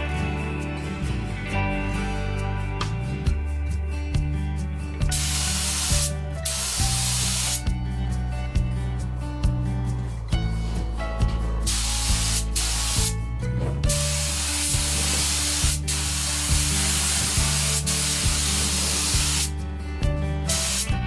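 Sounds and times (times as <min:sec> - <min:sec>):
paint spray gun hissing: 0:05.1 - 0:07.6, 0:11.6 - 0:13.1, 0:14.0 - 0:19.5, 0:20.5 - 0:21.0.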